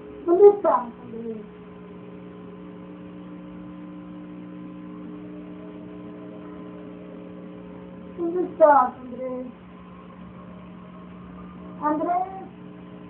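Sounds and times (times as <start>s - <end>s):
hum of held tones: 0.0s - 13.0s
person speaking: 11.8s - 12.5s.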